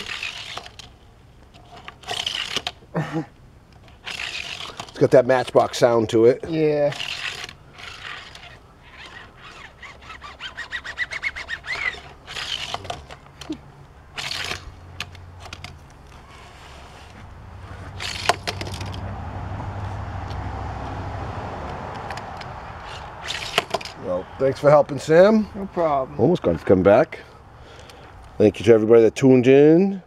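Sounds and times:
toy car rolling on plastic track: 0.0s - 0.9s, 1.6s - 2.8s, 3.9s - 5.8s, 6.8s - 13.2s, 14.2s - 15.7s, 18.0s - 19.0s, 22.8s - 24.0s.

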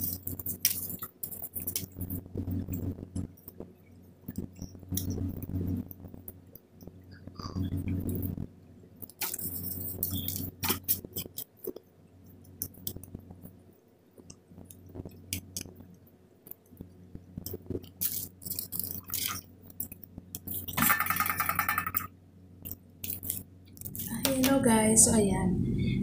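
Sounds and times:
person speaking: 23.9s - 25.7s.

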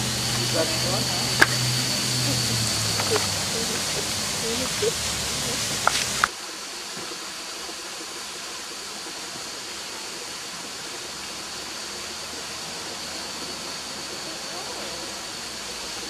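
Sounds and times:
creek and waterfall rushing: 0.0s - 16.0s.

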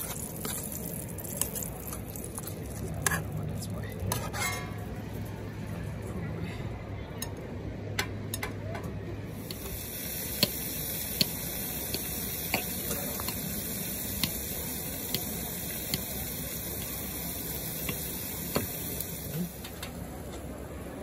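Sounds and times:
food sizzling in a pan: 0.0s - 3.4s, 9.4s - 19.7s.

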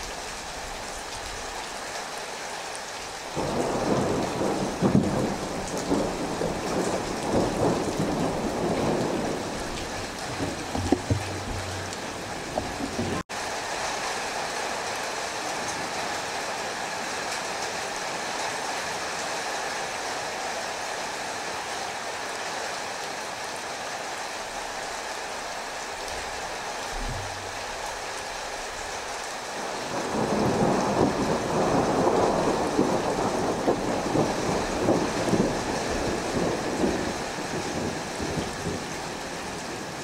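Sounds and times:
rain hiss: 0.0s - 40.0s
thunder rumble: 3.4s - 13.2s, 25.9s - 39.3s.

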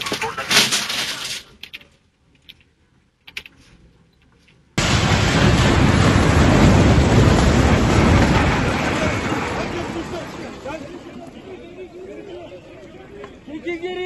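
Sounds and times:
building collapsing rumble: 4.8s - 11.6s.

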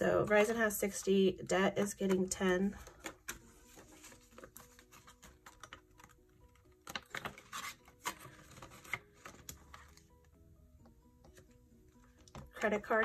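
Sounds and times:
soft background music: 0.0s - 13.0s
banknotes rustling: 1.8s - 10.1s.

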